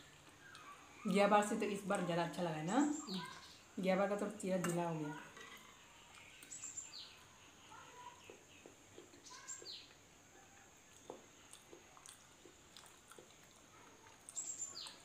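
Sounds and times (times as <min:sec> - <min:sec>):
soft eating clicks: 0:00.2 - 0:00.8, 0:05.4 - 0:06.8, 0:10.8 - 0:15.0.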